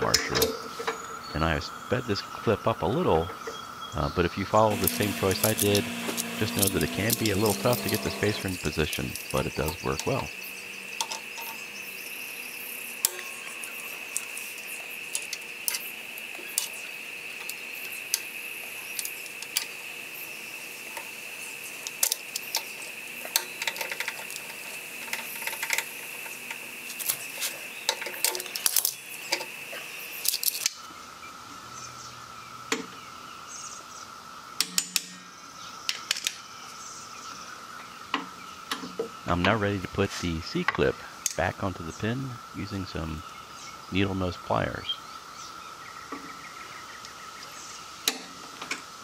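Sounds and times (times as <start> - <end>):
high insect drone: 0.0 - 49.0
small steel parts clinking: 4.7 - 10.2, 21.8 - 29.5, 30.2 - 30.8.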